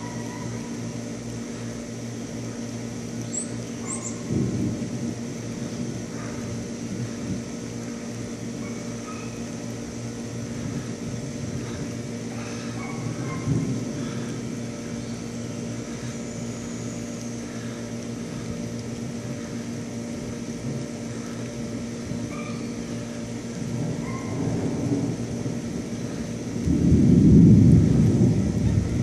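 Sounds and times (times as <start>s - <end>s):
steady hum: 0.0s - 29.0s
distant thunder rumbling: 3.8s - 19.5s, 22.0s - 29.0s.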